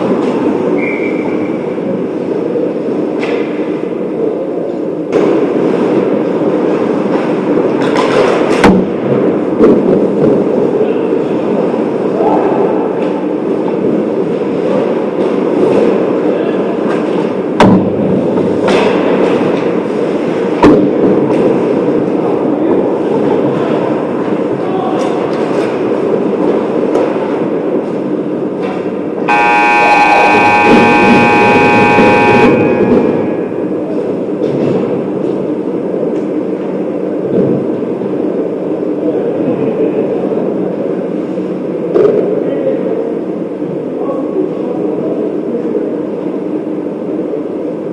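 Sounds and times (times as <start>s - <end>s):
low din of ice rink: 0.0s - 47.9s
indistinct voices: 29.3s - 33.6s.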